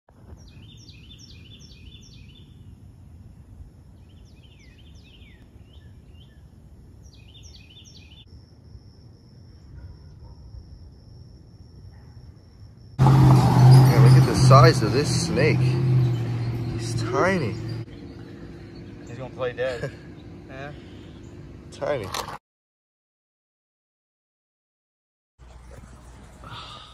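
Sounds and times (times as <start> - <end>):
songbird singing: 0.2 - 8.4, 9.2 - 22.1
low outdoor rumble: 13.0 - 22.2.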